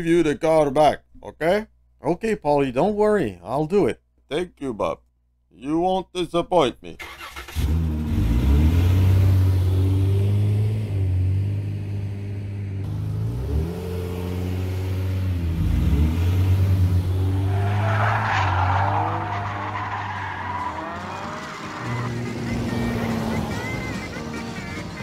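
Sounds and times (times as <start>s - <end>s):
car engine accelerating: 7.4s - 25.0s
tyre squeal: 17.3s - 24.1s.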